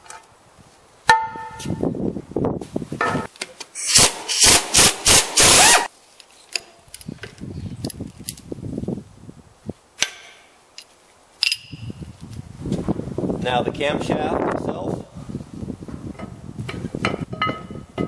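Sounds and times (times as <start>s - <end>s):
impact wrench bursts: 3.8s - 5.9s
metal clinks: 10.0s - 12.0s.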